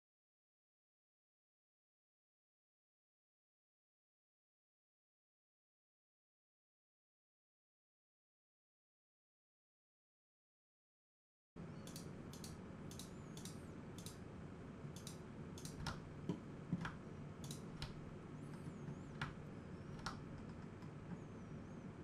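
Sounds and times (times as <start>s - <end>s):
low background hum: 11.6s - 22.0s
mouse and keyboard clicks: 11.8s - 14.2s, 14.9s - 21.4s.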